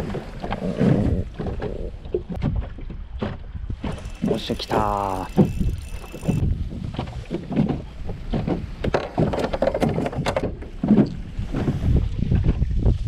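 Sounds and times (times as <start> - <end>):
wind rumble on microphone: 0.0 - 13.0
fishing gear clicking and rustling: 3.8 - 6.4.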